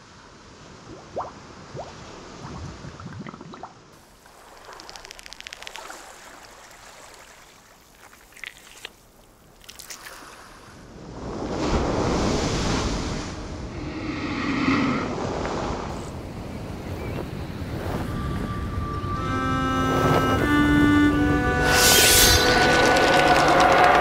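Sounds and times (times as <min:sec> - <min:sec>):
small drips and pops: 0:00.9 - 0:10.2
surf washing: 0:04.0 - 0:08.3
quick clicks: 0:04.6 - 0:06.0
wind-like noise: 0:10.4 - 0:19.2.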